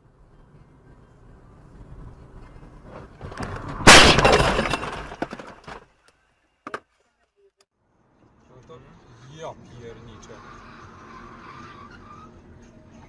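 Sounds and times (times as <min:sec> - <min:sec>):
car crash impact: 0:02.8 - 0:05.9
debris clattering: 0:03.2 - 0:06.0
glass shattering: 0:03.8 - 0:05.8.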